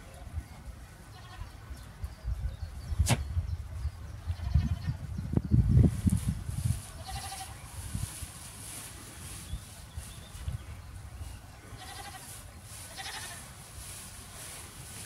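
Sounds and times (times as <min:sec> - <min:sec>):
goat bleating: 0:01.1 - 0:01.5, 0:07.0 - 0:07.6, 0:11.8 - 0:12.3, 0:12.9 - 0:13.4.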